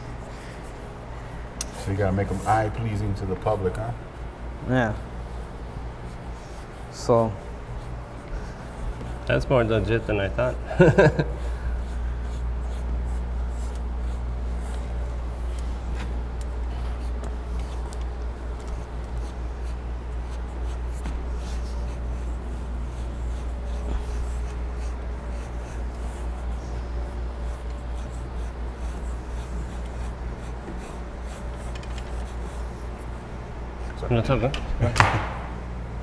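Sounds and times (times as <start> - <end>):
low electrical hum: 0.0 - 36.0
markers scratching on board: 5.9 - 10.6, 11.7 - 33.9.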